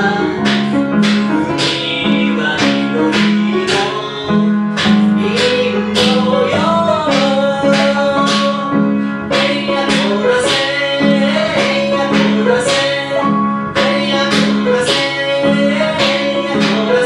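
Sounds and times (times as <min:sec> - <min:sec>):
man singing: 0:00.0 - 0:17.0
piano accompaniment: 0:00.0 - 0:17.0.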